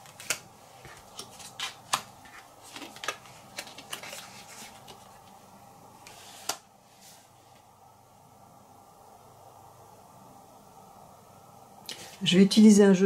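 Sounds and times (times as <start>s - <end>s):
cards tapping and sliding on table: 6.1s - 6.6s.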